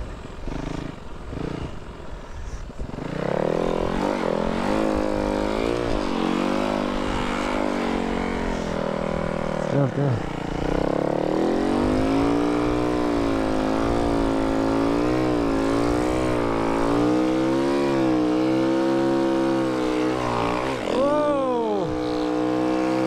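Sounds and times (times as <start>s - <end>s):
motorcycle engine revving: 0.0s - 2.2s, 2.8s - 23.0s.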